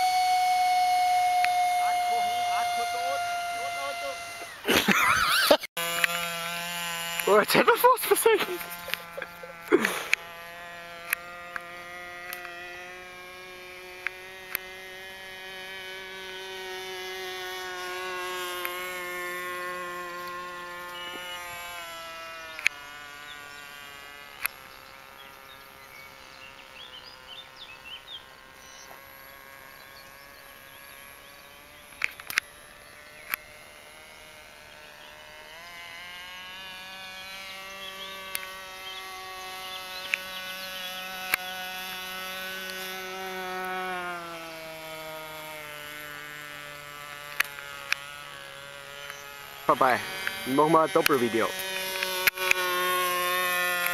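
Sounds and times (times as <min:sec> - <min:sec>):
model plane motor whine: 0:00.0 - 0:53.9
sharp clicks: 0:31.9 - 0:32.5.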